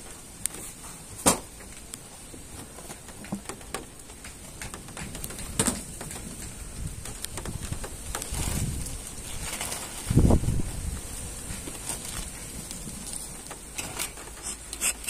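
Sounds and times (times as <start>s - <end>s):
light wooden clicks and taps: 1.5s - 9.2s, 12.7s - 14.8s
wooden boxes knocking: 2.6s - 8.8s.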